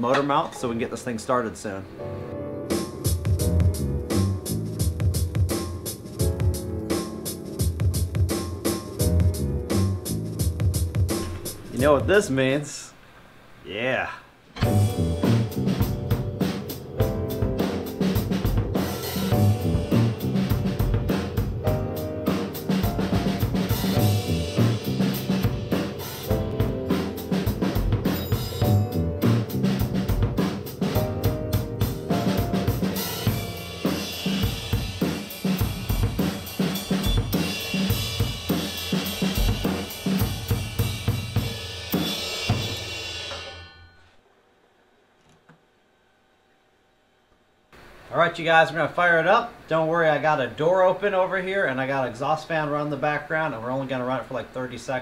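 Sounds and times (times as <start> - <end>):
pitched instrument parts: 0.0 - 1.2
drum kit playing a busy beat: 2.7 - 12.4, 14.6 - 43.6.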